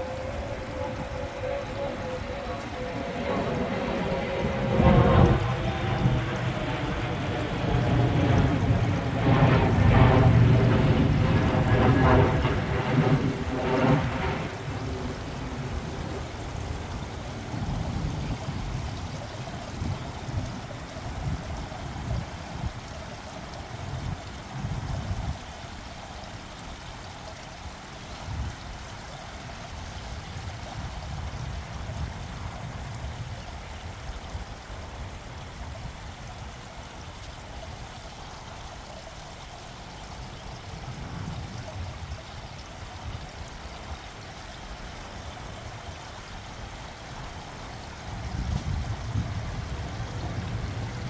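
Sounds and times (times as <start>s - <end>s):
low rumbles: 0.0s - 22.3s
fountain water running: 0.0s - 51.0s.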